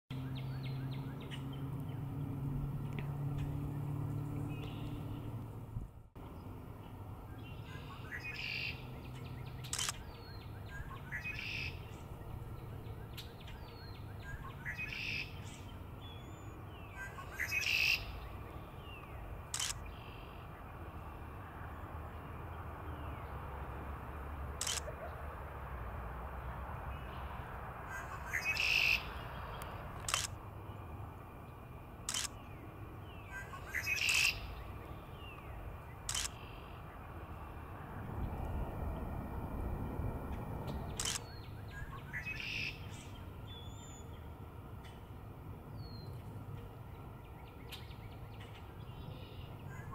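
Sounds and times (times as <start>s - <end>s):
blackbirds singing: 6.2s - 20.6s, 27.9s - 30.3s, 32.1s - 37.0s, 40.8s - 45.0s
sharp clicks: 9.7s - 10.1s, 19.5s - 19.9s, 24.6s - 25.0s, 29.6s - 30.4s, 32.1s - 32.4s, 36.1s - 36.4s, 40.6s - 41.3s.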